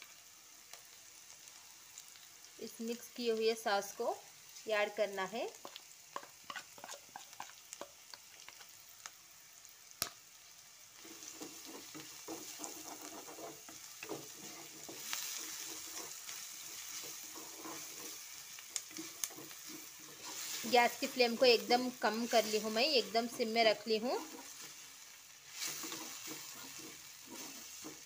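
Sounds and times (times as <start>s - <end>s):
vegetables sizzling: 0.0s - 28.0s
spatula scraping in wok: 5.6s - 7.8s, 11.0s - 28.0s.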